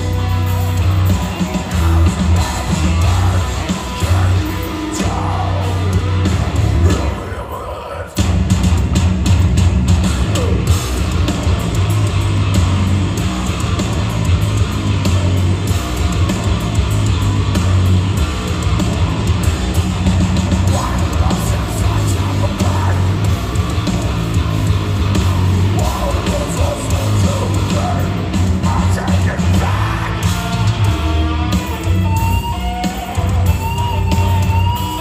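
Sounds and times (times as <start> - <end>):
heavy metal band playing live: 0.0 - 35.0.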